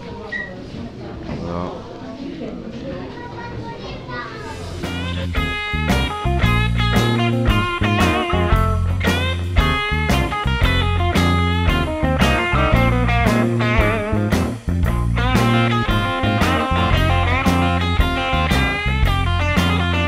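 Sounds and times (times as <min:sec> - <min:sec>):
guitar-led music with steady beat: 0:04.8 - 0:20.0.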